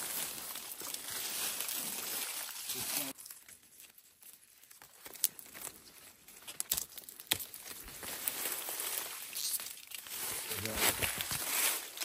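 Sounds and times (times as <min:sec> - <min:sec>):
stiff leaves rustling: 0:00.0 - 0:12.0.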